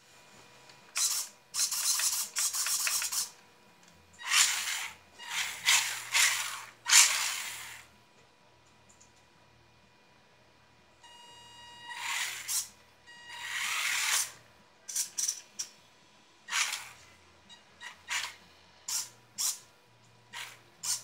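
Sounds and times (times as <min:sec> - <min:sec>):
rc car motor whirring: 0:00.9 - 0:03.3, 0:04.2 - 0:07.9, 0:11.9 - 0:12.7, 0:13.3 - 0:15.7, 0:16.4 - 0:17.1, 0:17.8 - 0:19.7, 0:20.3 - 0:21.0.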